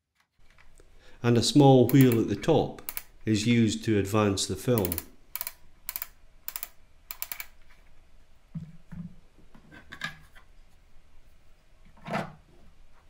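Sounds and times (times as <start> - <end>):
camera film wheel ratchet clicking: 4.8 - 7.5.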